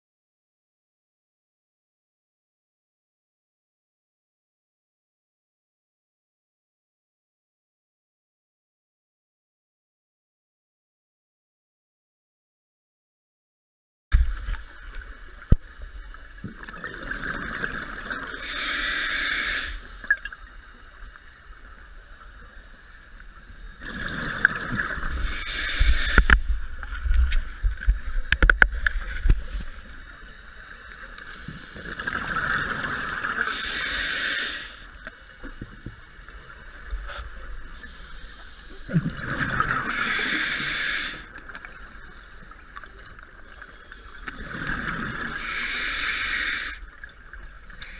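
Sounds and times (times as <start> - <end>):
exhaled bubbles gurgling: 15.4 - 20.5, 23.6 - 28.9, 31.4 - 34.7, 38.6 - 47.9
diver breathing through regulator: 18.3 - 20.1, 24.9 - 26.6, 33.3 - 35.0, 37.1 - 41.3, 45.2 - 46.9.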